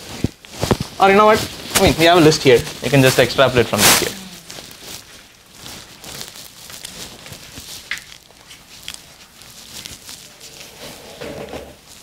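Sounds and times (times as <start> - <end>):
faint low murmur: 2.9 - 5.1
small clicks and rustles: 4.5 - 11.0.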